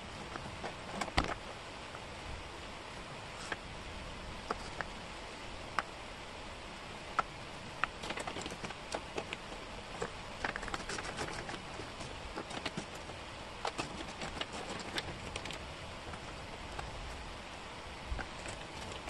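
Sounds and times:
low hiss: 0.0s - 19.0s
wooden puzzle pieces clicking: 10.0s - 16.2s.

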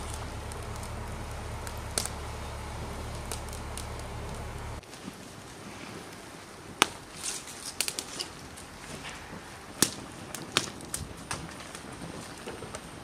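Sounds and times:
wood fire crackling and popping: 0.0s - 13.0s.

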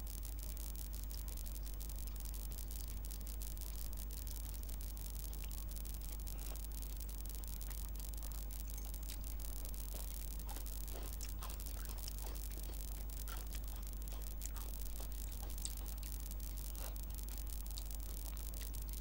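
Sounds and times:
low hum and hiss: 0.0s - 19.0s
fingers squishing food: 6.4s - 19.0s.

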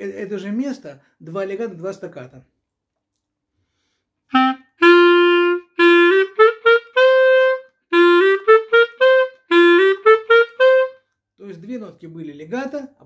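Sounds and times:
clarinet playing scale: 4.3s - 11.1s.

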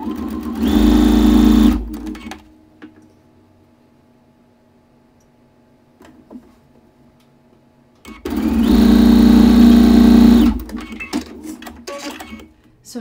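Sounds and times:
sewing machine humming: 0.0s - 2.4s, 8.0s - 12.5s.

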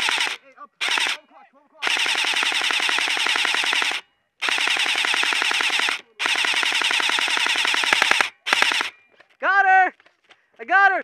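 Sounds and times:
airsoft rifle firing bursts: 0.0s - 1.2s, 1.8s - 9.0s.

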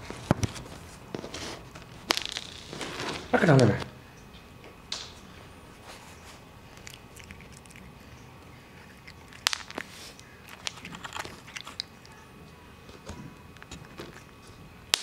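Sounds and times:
cat crunching dry kibble: 5.9s - 15.0s.

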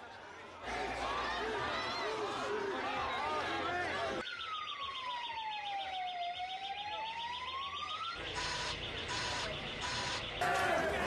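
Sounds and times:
vehicle siren wailing: 4.0s - 11.0s
short alarm beeps: 8.4s - 10.4s.

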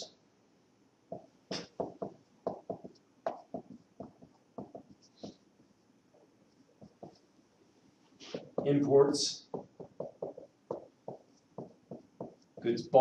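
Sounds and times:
marker squeaking on whiteboard: 1.1s - 5.4s, 6.2s - 7.3s, 8.2s - 8.8s, 9.4s - 12.7s.

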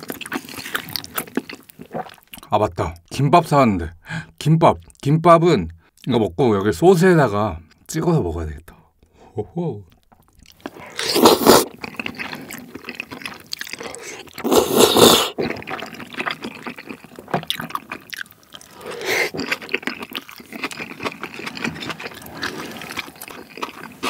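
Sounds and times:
wet chewing and smacking: 0.0s - 2.5s, 9.9s - 24.0s
wet slurping off chopsticks: 10.7s - 12.6s, 14.0s - 16.0s.

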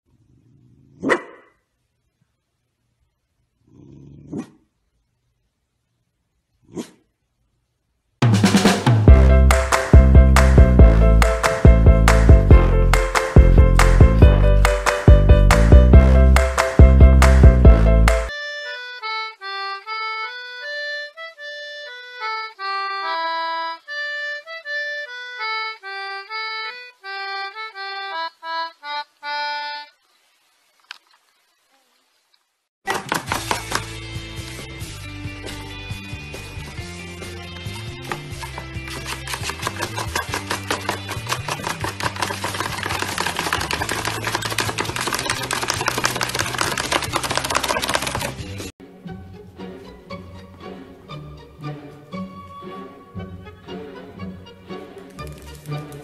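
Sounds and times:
concertina melody: 17.8s - 30.0s
dog claws scratching cardboard box: 38.1s - 48.4s.

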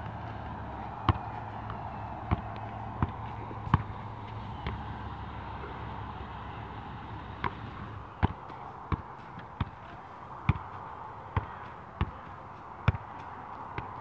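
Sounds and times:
ball touches: 0.2s - 5.0s.

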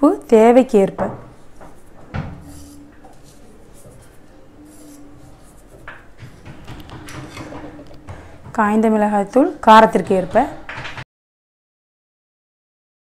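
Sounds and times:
fingers rubbing salt over flour: 1.6s - 7.4s.

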